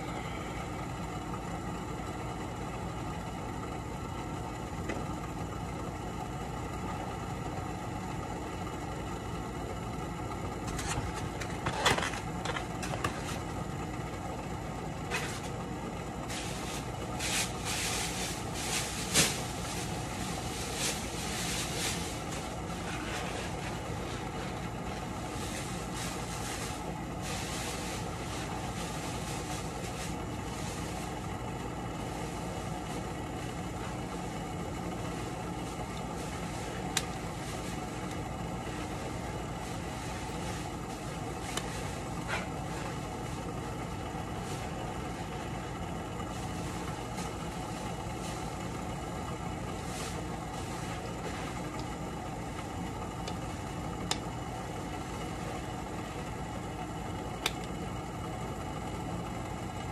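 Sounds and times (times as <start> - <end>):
machine hum: 0.0 - 59.9.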